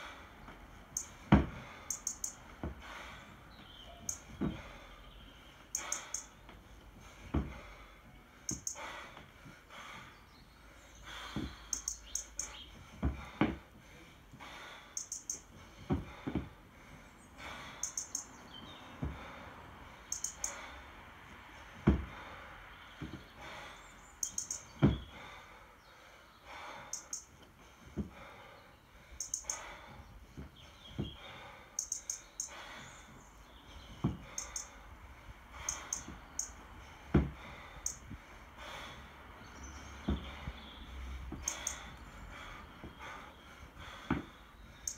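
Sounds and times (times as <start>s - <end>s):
kettlebell thuds on wooden platform: 1.2s - 1.6s, 37.1s - 37.4s
high clicks: 1.9s - 2.4s, 5.8s - 6.3s, 11.7s - 12.6s, 15.0s - 15.5s, 20.1s - 20.6s, 24.2s - 24.7s, 29.2s - 29.6s, 31.8s - 32.5s.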